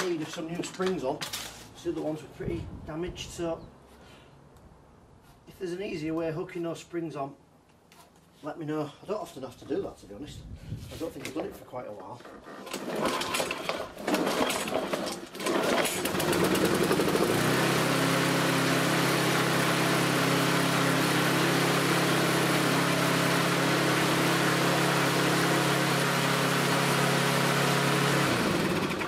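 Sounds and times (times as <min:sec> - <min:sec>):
lawnmower engine running fast: 0:12.7 - 0:29.0.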